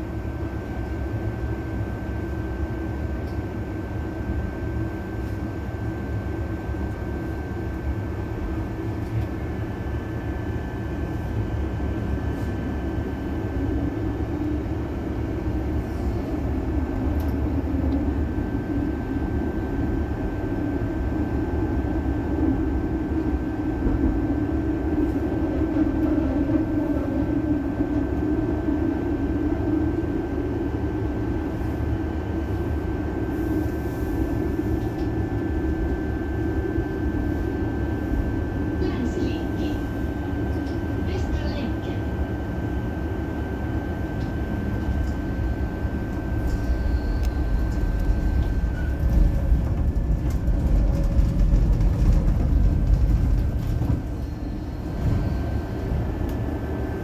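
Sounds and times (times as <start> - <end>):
tram rumbling on tracks: 0.0 - 57.0
thin whine: 45.1 - 49.8.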